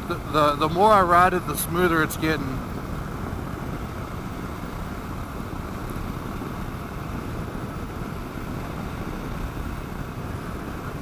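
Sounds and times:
wind on microphone: 0.0 - 11.0.

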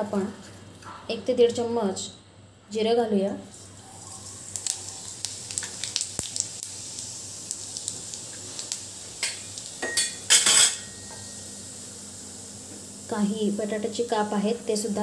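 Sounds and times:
seeds sizzling in hot oil: 3.4 - 15.0
metal pan clanks and scrapes: 9.9 - 11.0.

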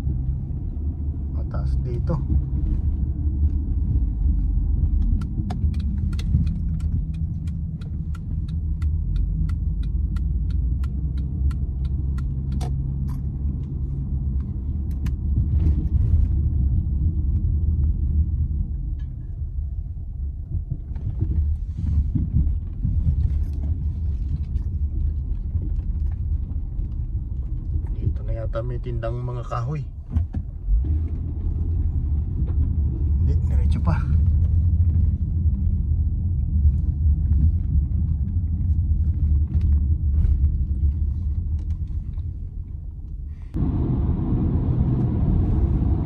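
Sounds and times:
car engine and tyre rumble: 0.0 - 46.0
turn signal ticking: 4.6 - 15.4.

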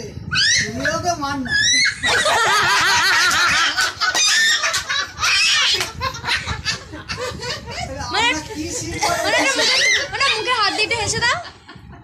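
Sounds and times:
loud high-pitched laughter: 1.5 - 7.6, 9.0 - 10.4.

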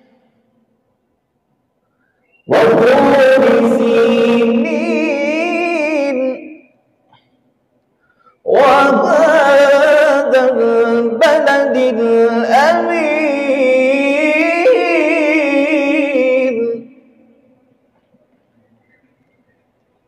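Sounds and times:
man reciting melodically: 2.4 - 6.8, 8.4 - 17.4.

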